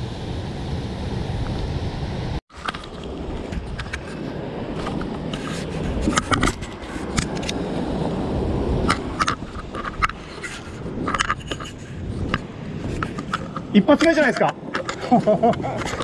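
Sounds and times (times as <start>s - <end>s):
surf rumbling: 0.0s - 16.0s
wind on microphone: 0.0s - 16.0s
scrapes and clicks on rock: 8.8s - 16.0s.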